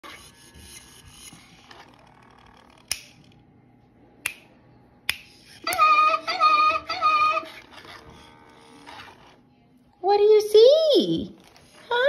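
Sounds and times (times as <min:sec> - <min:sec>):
finger snaps: 0:04.2 - 0:04.5, 0:05.1 - 0:05.3
toy chimp calls: 0:05.6 - 0:07.7.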